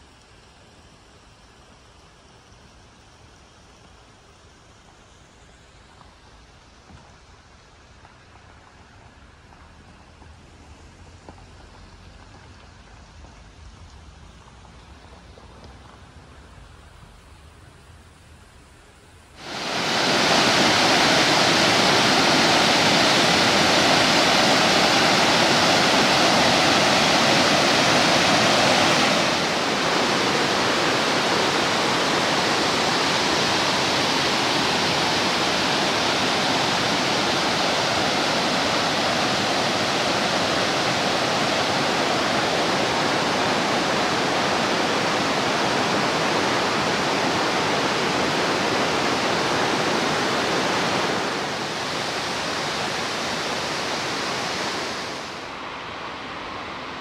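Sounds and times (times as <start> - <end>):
stream rushing over rocks: 19.4 - 57.0.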